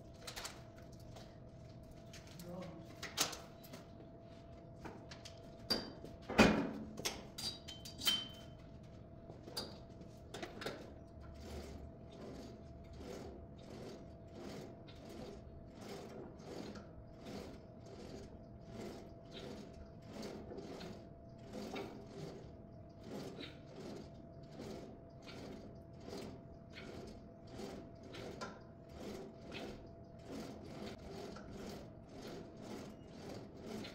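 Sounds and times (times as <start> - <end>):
cable machine swishing: 11.4 - 33.9.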